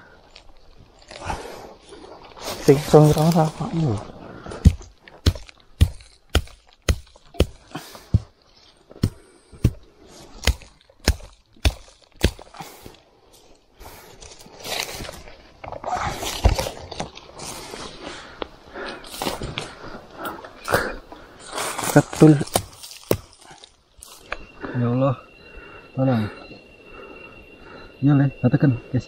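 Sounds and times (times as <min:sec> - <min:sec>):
rustling: 0:00.0 - 0:20.6, 0:21.2 - 0:24.4
sharp chopping strikes: 0:04.6 - 0:08.3, 0:09.0 - 0:09.8, 0:10.4 - 0:12.6, 0:22.2 - 0:23.4.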